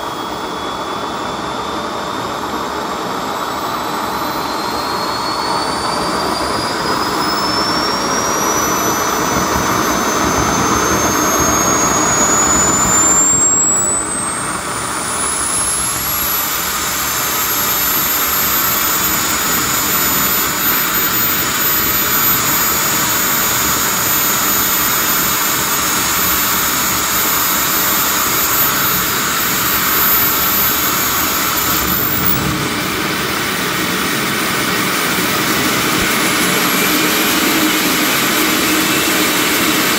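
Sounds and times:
jet turbine whining: 0.0s - 39.9s
exhaust rushing: 28.8s - 36.6s.

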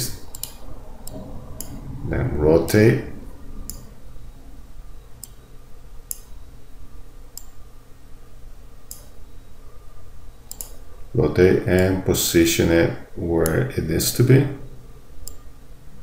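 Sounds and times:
faint low hum: 0.0s - 16.0s
computer mouse clicking: 0.3s - 1.8s, 3.7s - 3.9s, 5.2s - 5.4s, 8.9s - 9.2s, 10.4s - 10.8s, 15.2s - 15.4s.

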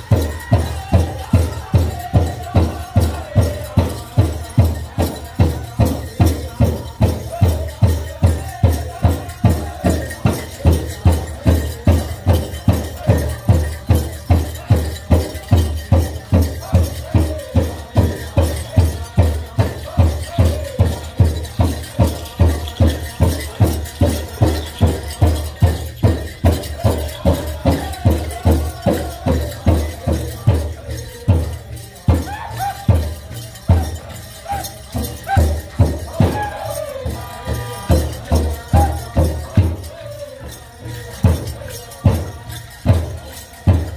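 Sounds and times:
group singing high: 0.0s - 14.4s, 34.4s - 41.4s.

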